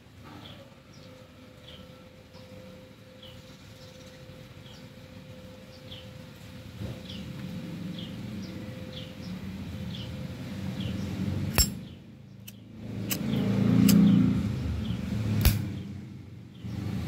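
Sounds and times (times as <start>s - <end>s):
low vehicle rumble: 6.0s - 17.0s
metal lighter lid clinking open: 11.5s - 11.8s.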